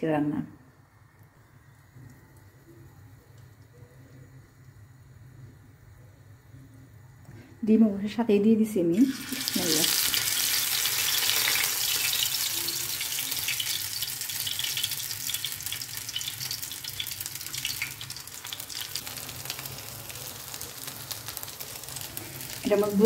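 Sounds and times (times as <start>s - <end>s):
meat sizzling in a pan: 9.0s - 23.0s.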